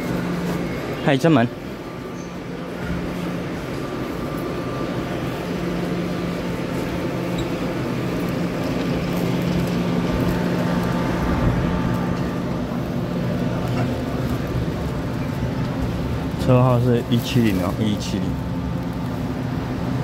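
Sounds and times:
metro train humming: 0.0s - 20.0s
station noise: 0.0s - 20.0s.

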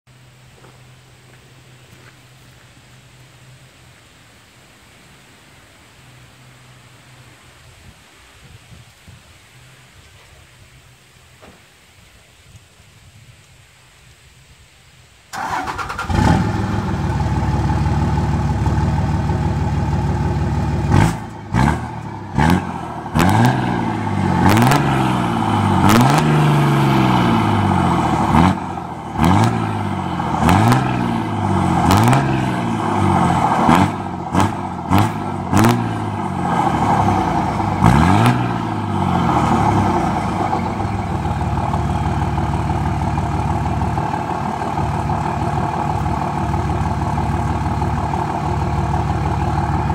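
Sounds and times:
exhaust cracks: 15.3s - 49.9s
truck engine starting and idling: 15.3s - 49.9s
engine revving: 15.4s - 49.9s.

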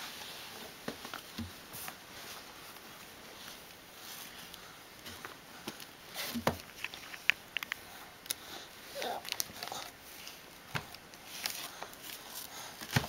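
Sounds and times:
soft rustling: 0.0s - 13.0s.

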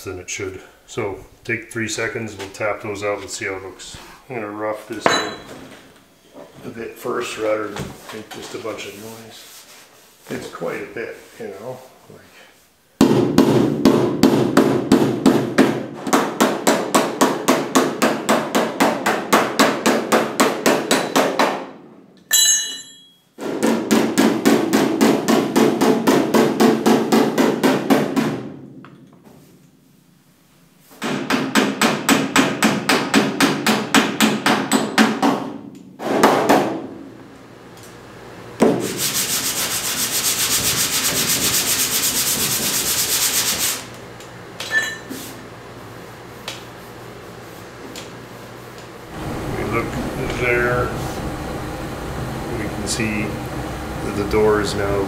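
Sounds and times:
sanding block rubbing steel: 38.8s - 43.9s.

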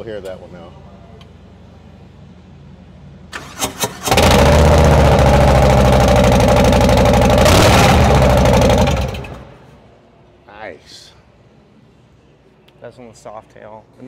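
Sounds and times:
motorcycle engine starting and running: 3.3s - 9.7s.

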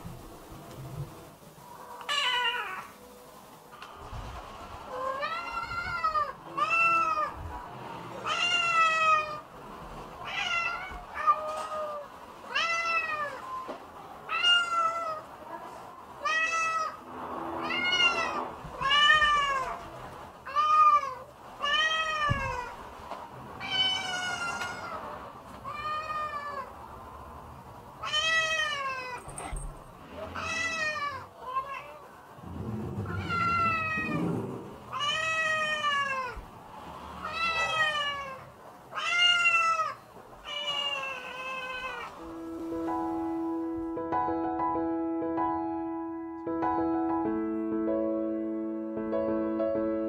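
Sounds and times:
cat meowing: 2.0s - 3.0s, 4.9s - 7.4s, 8.2s - 9.5s, 10.2s - 15.3s, 16.2s - 17.0s, 17.6s - 22.8s, 23.6s - 26.8s, 28.0s - 29.4s, 30.3s - 36.5s, 37.2s - 42.2s.

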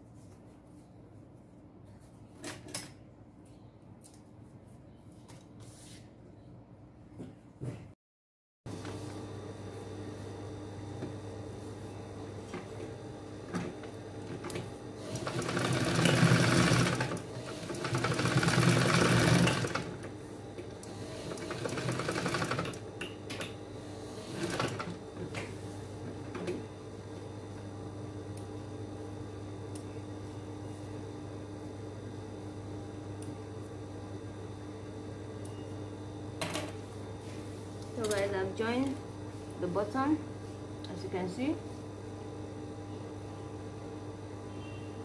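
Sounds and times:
sewing machine stitching: 14.4s - 20.1s, 20.9s - 22.8s, 24.1s - 25.0s.

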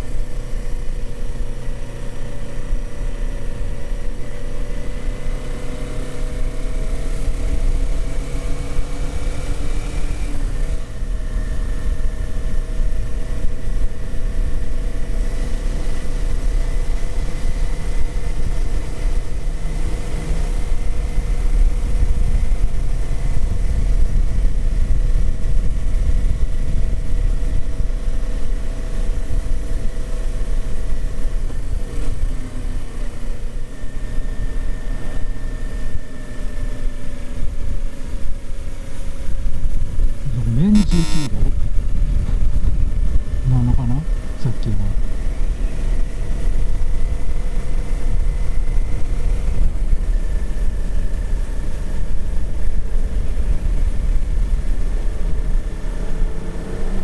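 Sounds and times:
wind rumble on microphone: 8.6s - 32.7s, 41.3s - 44.4s, 45.0s - 57.0s.

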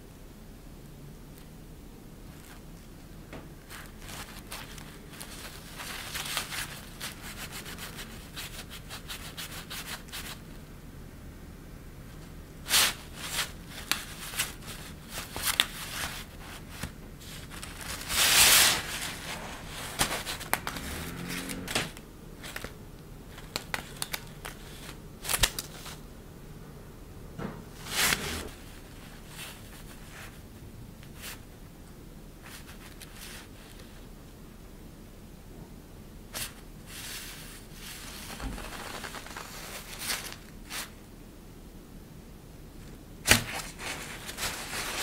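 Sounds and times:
fabric rustling and crinkling: 3.6s - 8.1s, 12.7s - 21.8s, 36.4s - 41.0s, 43.3s - 45.0s.

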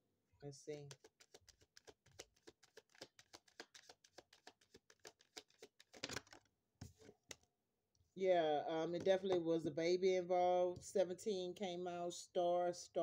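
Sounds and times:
cards being shuffled: 0.9s - 7.4s.

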